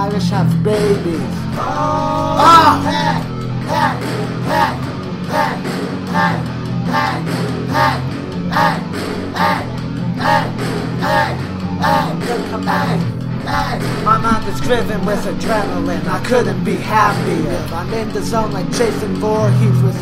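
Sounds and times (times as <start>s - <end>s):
rap-metal backing track: 0.0s - 20.0s.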